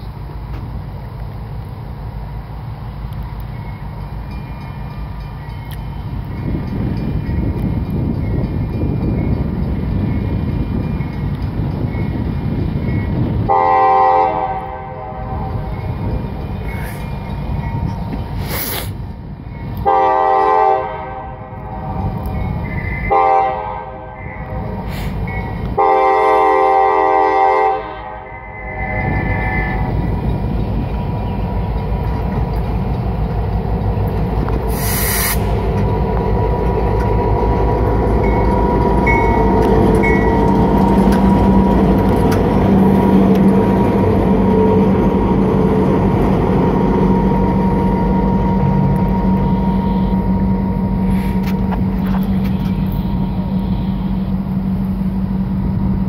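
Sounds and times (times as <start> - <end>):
diesel locomotive engine running: 0.0 - 56.0
locomotive horn blasts: 13.4 - 15.7, 19.8 - 22.2, 22.9 - 24.8, 25.8 - 30.0, 49.4 - 50.4.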